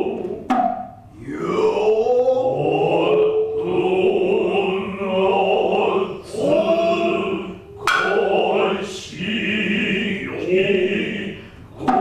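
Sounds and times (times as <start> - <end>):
drawn-out chanting: 0.0 - 0.5, 1.2 - 12.0
sharp drum knock: 0.4 - 1.0, 7.9 - 8.3.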